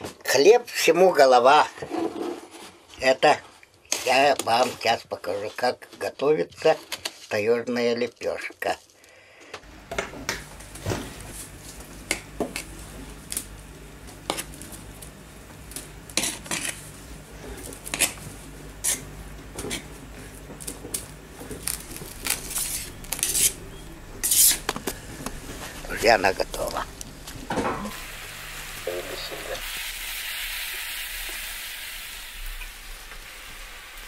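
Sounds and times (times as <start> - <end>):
scraping rustles: 16.1 - 27.5.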